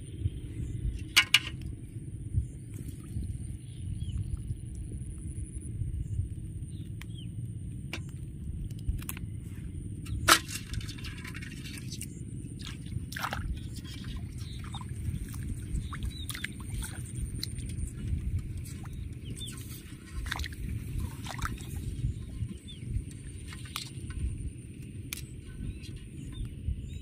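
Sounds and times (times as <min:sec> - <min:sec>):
steady low rumble: 0:00.0 - 0:27.0
small water splashes: 0:10.0 - 0:26.3.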